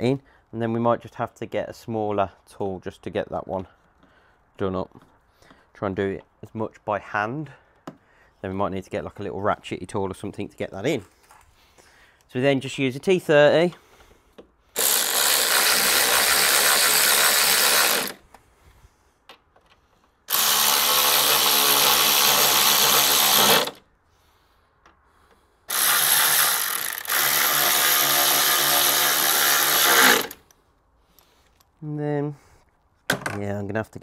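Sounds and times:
power driver spinning: 14.8 - 18.2, 20.3 - 23.8, 25.7 - 30.5.

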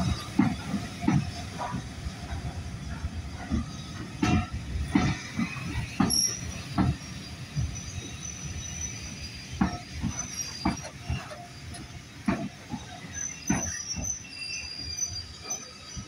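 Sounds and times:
train wheels knocking on rail joints: 0.0 - 14.3
high wheel squeal: 5.4 - 12.0, 12.7 - 16.0.

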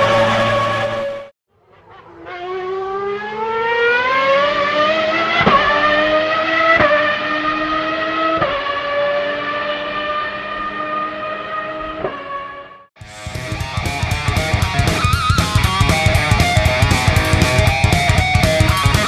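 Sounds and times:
held instrumental notes: 13.0 - 19.0.

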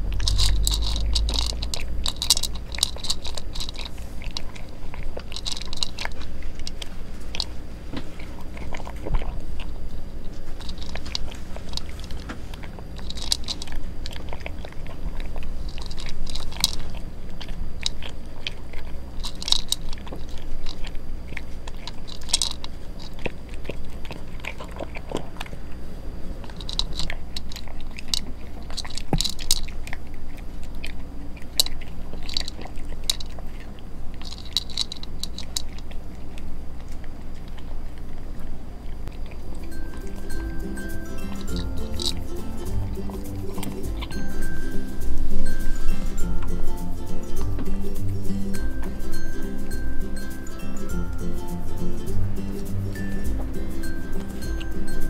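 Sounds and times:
cat gulping: 0.0 - 34.6
cat crunching dry kibble: 0.0 - 49.0.

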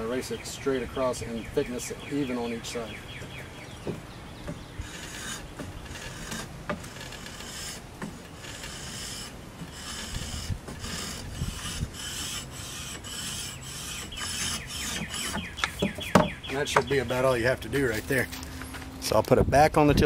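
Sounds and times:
sandpaper scratching on wood: 4.8 - 16.1.

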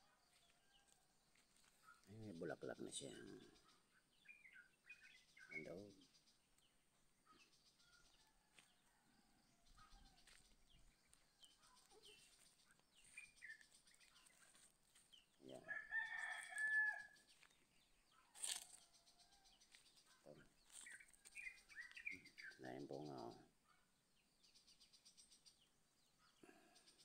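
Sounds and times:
faint small birds chirping: 0.0 - 27.0
rooster crowing: 15.6 - 17.2.

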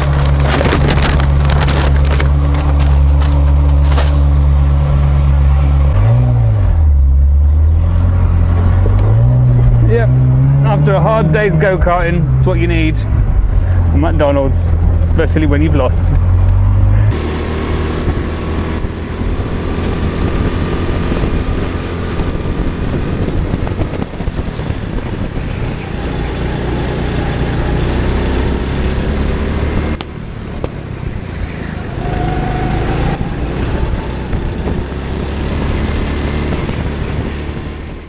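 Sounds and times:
go-kart engine running: 0.0 - 5.9, 16.2 - 38.0.

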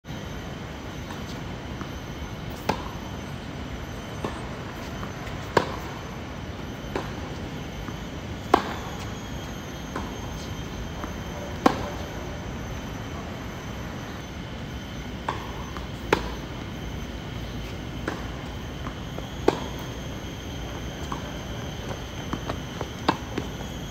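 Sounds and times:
tennis ball bouncing: 1.0 - 3.2, 4.2 - 6.0, 6.7 - 12.7, 14.8 - 23.9
racket striking ball: 8.5 - 9.0, 11.6 - 12.0, 17.4 - 23.8.

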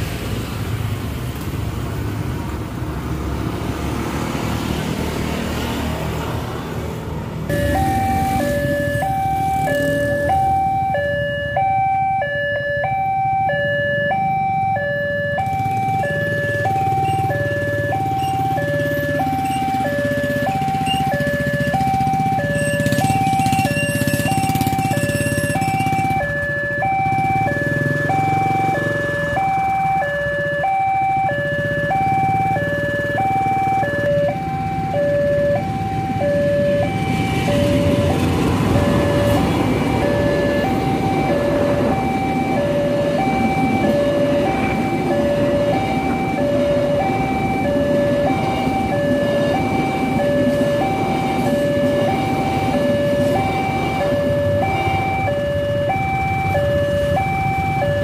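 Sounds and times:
two-tone warning alarm chime: 7.5 - 58.0
train wheels rumbling on rails: 35.6 - 55.0.

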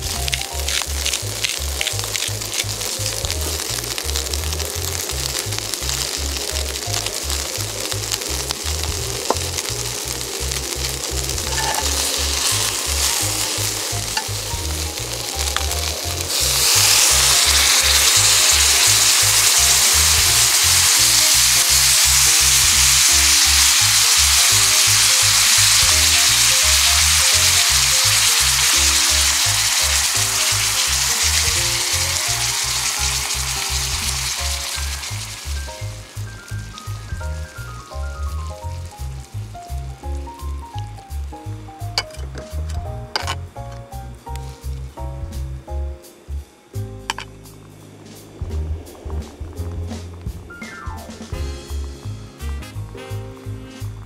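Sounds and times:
liquid poured into hot pan: 0.0 - 37.6
meatballs sizzling in a skillet: 0.0 - 45.6
background music with bass beat: 0.0 - 54.0.

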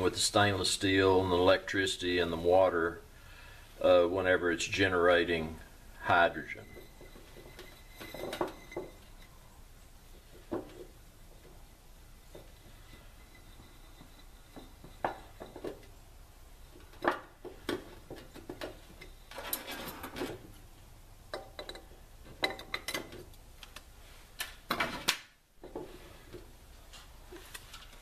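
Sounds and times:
clicks and light taps: 21.3 - 24.6.

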